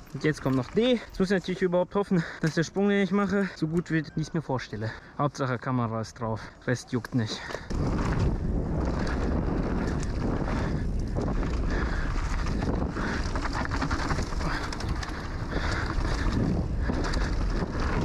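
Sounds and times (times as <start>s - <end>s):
bike clattering over rough ground: 0.0s - 4.0s, 7.0s - 18.0s
heavy wind rush on microphone: 7.4s - 18.0s.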